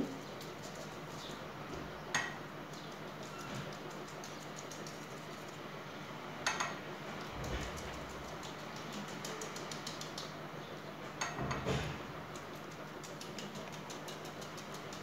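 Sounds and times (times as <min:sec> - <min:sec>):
pastry brush tapping on pastry: 0:07.7 - 0:10.4, 0:12.3 - 0:15.0.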